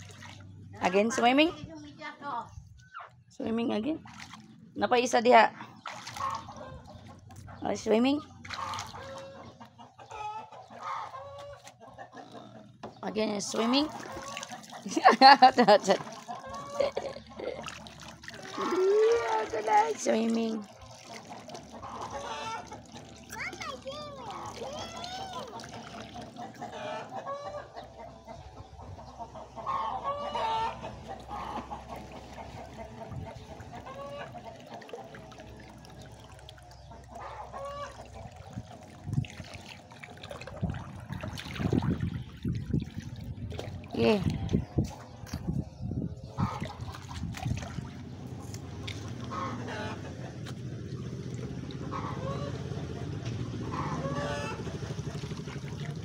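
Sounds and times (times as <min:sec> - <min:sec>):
chickens clucking: 0:05.6 - 0:07.6, 0:08.2 - 0:13.4, 0:14.0 - 0:17.6, 0:21.2 - 0:39.2, 0:44.2 - 0:55.5
chicken clucking: 0:08.6 - 0:12.8, 0:26.2 - 0:34.8
steady low rumble: 0:24.0 - 0:56.0.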